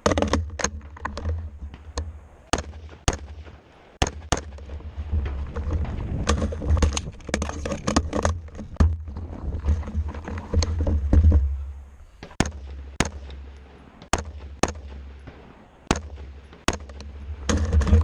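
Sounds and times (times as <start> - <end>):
rifle shots: 2.5 - 4.8, 12.2 - 17.6
low rumble of camera jostling: 4.6 - 14.1.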